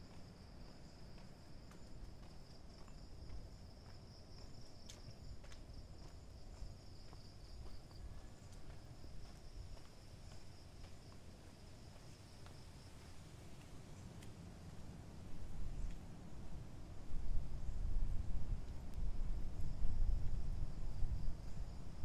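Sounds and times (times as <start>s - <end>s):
faint low rumble: 0.0s - 22.0s
crickets trilling: 0.1s - 14.2s.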